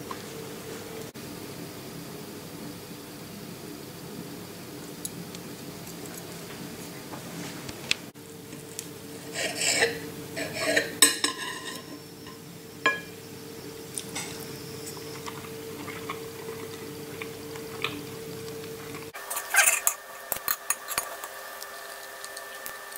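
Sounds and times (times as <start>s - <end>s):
faint steady hum: 0.0s - 22.9s
knife and fork scraping a plate: 9.2s - 12.3s, 19.1s - 22.6s.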